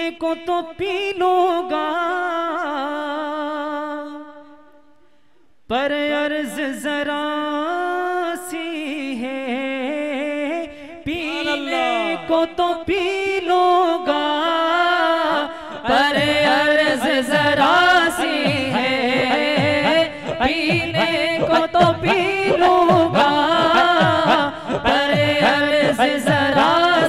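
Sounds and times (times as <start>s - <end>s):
men singing through microphones: 5.7s - 27.0s.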